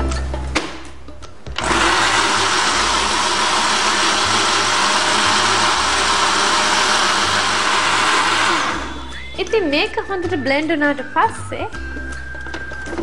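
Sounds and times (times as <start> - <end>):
electric blender whirring: 1.6 - 9.3.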